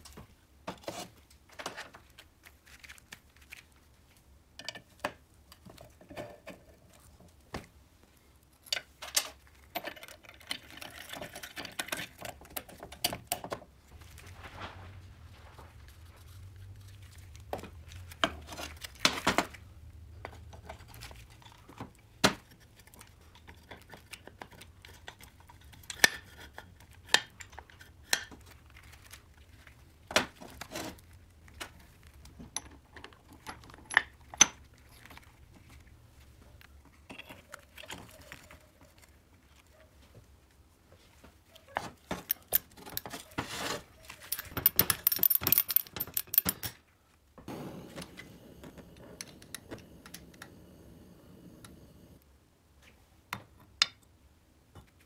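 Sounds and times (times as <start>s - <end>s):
rustling handling: 0.0s - 4.3s, 5.2s - 46.5s
metal parts clicking and knocking: 8.6s - 13.6s, 31.6s - 35.1s, 42.2s - 43.3s, 44.0s - 46.8s.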